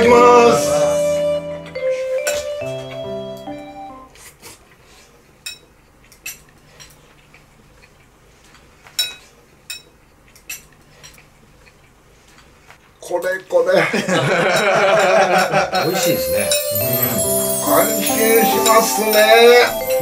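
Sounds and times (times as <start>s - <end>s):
cutlery clinking and scraping dish: 5.4s - 7.0s, 8.5s - 12.5s.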